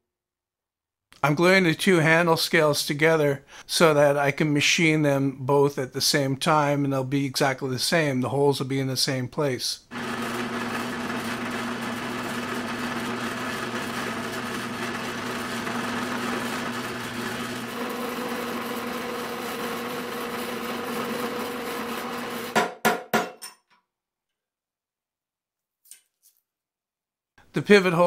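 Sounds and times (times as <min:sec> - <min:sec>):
drill press drilling metal: 0:09.9 - 0:22.6.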